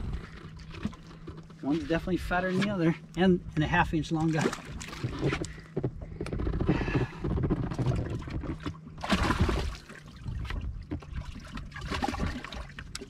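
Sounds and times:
wind rumble on microphone: 0.0s - 0.9s, 4.6s - 13.0s
water splashing and trickling: 0.0s - 5.5s, 7.4s - 13.0s.

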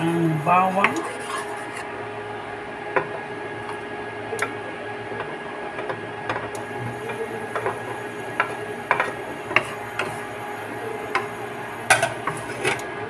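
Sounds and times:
oil hissing: 6.6s - 12.8s
spatula tapping and scraping pan: 7.1s - 10.2s, 11.1s - 12.8s.

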